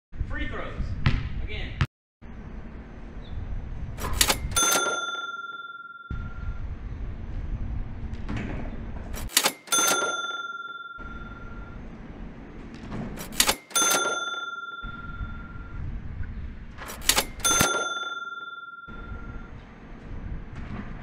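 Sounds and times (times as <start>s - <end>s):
wind rumble on microphone: 6.1s - 9.2s, 15.1s - 16.8s, 19.5s - 21.0s.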